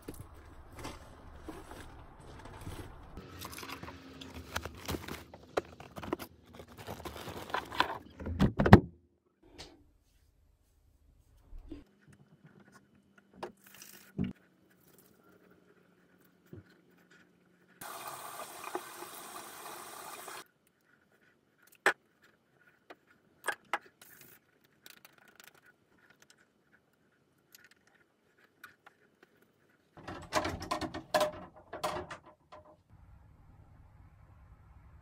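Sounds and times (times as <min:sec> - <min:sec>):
sink tap running: 0:17.8 - 0:20.4
clattering and rustling: 0:27.5 - 0:32.9.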